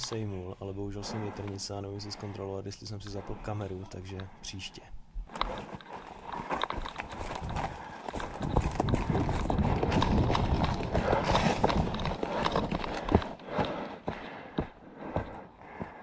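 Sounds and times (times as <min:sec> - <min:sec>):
footsteps running on leaves: 0:05.6 - 0:16.0.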